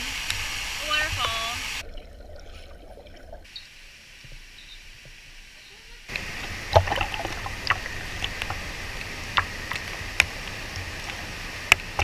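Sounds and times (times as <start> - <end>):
waterfall pouring into pool: 0.0 - 12.0
water drops splashing: 6.1 - 12.0.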